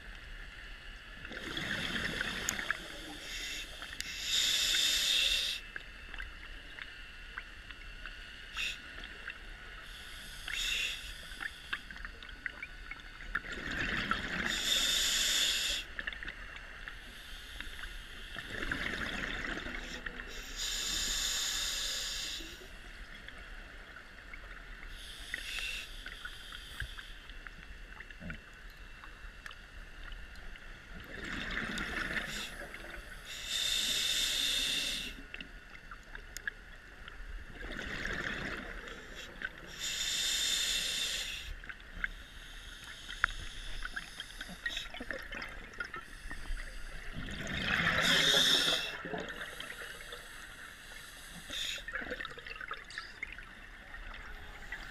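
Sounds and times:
regulator hiss on inhale: 1.3 - 6.5, 8.2 - 12.1, 14.3 - 23.4, 24.4 - 27.9, 31.8 - 35.8, 38.6 - 52.1, 52.9 - 54.9.

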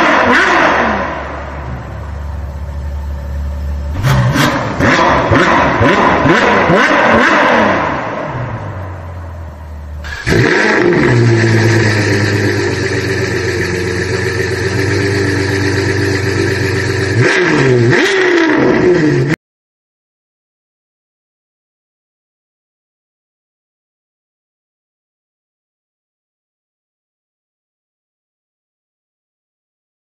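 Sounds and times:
vehicle engine revving: 0.0 - 9.2, 9.8 - 19.4.

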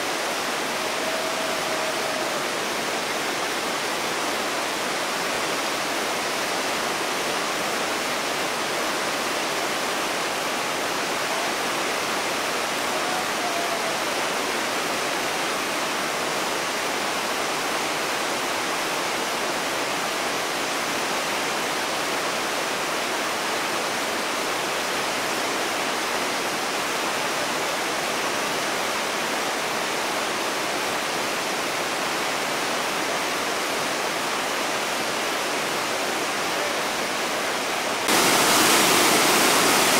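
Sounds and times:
whitewater rapids rushing over boulders: 0.0 - 39.9.

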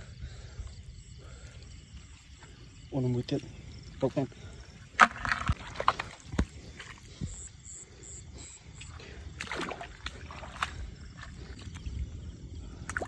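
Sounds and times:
light splashing in water: 8.8 - 12.0.

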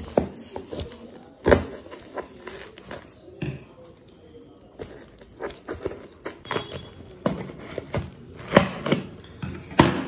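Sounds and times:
plastic crinkling: 4.6 - 8.6
scissors cutting plastic packaging: 4.8 - 9.2.

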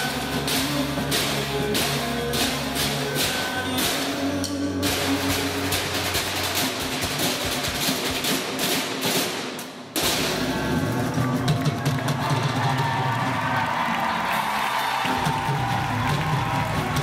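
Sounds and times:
sticks beating metal trash cans: 0.0 - 12.3.

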